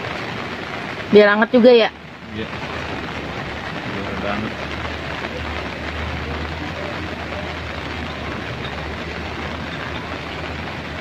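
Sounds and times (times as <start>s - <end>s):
heavy rain: 0.0s - 11.0s
low rumble: 1.9s - 11.0s.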